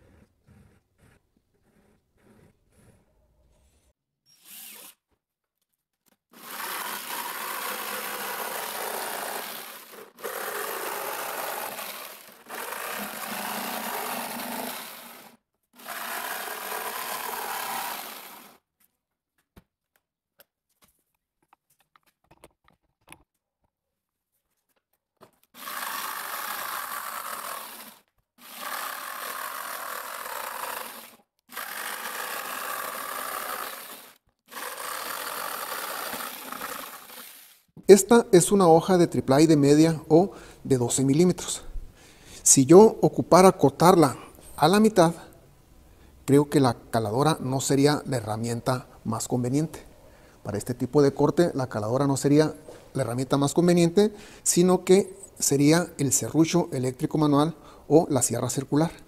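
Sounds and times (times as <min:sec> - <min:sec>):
jigsaw cutting plastic: 0:04.3 - 0:05.1, 0:06.3 - 0:18.6, 0:25.3 - 0:37.9.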